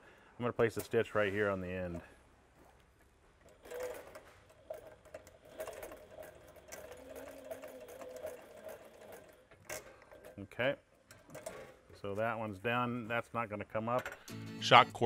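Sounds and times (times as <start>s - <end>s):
sewing machine motor humming: 3.5s - 9.6s.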